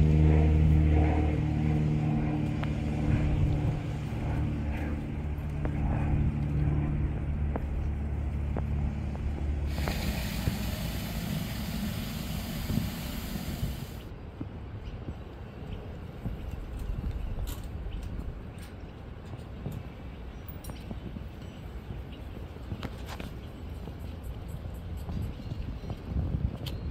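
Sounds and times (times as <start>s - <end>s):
low engine hum: 0.0s - 15.2s
hiss: 9.7s - 14.1s.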